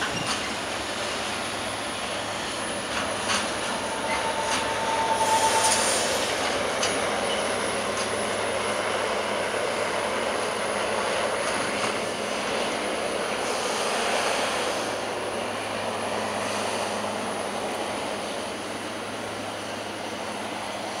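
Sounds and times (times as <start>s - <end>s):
freight train rolling over rails: 0.0s - 21.0s
train wheel squeal: 0.0s - 21.0s.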